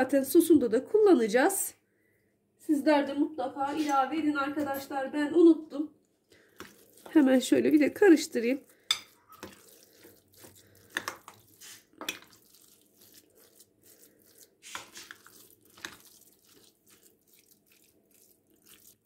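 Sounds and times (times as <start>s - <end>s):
wet squishing of stirred food: 6.2s - 19.0s
spoon scraping glass bowl: 8.6s - 19.0s.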